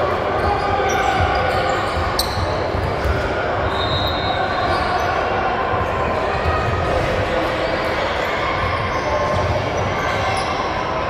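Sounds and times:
voices echoing in a hall: 0:00.0 - 0:11.0.

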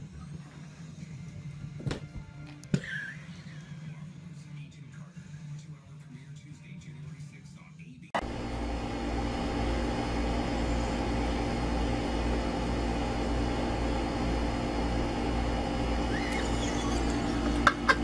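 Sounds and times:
steady machine hum: 0:08.2 - 0:18.0.

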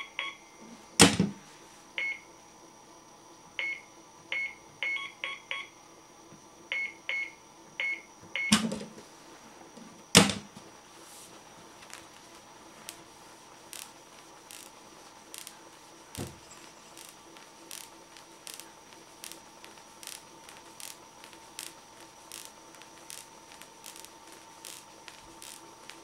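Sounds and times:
electrical hum: 0:00.0 - 0:26.0
static crackles: 0:09.1 - 0:26.0.

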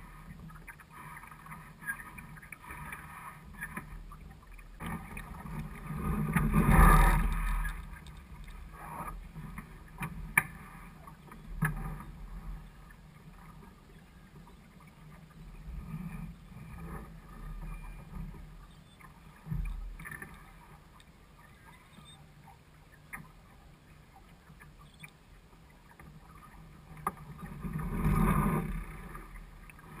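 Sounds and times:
water sloshing along hull: 0:00.0 - 0:30.0.

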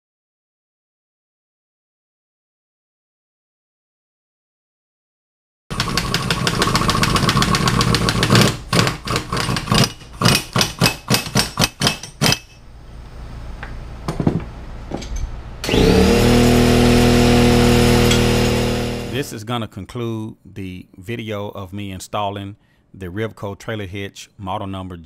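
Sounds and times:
pneumatic impact wrench rattling: 0:05.7 - 0:12.6, 0:15.6 - 0:19.3
steady held tone: 0:15.6 - 0:19.3.

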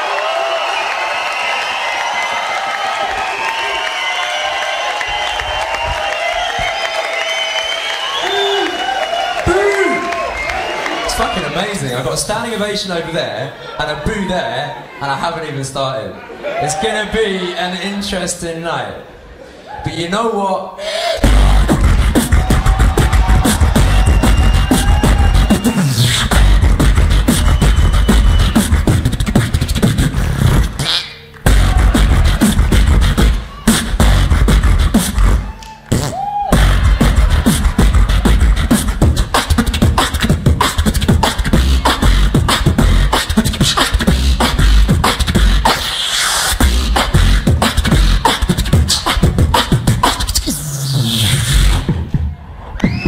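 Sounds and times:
beatboxing into a microphone: 0:20.7 - 0:52.3
rising and falling vocal tone: 0:21.1 - 0:30.8, 0:31.5 - 0:51.9.

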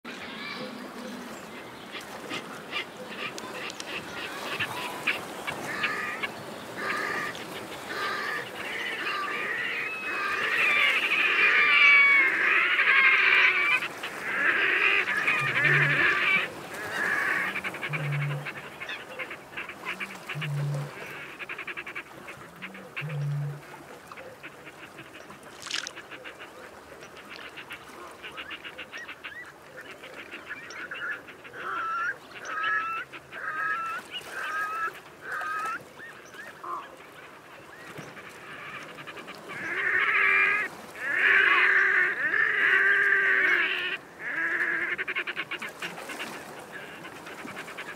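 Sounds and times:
grebes calling: 0:01.9 - 0:23.5.

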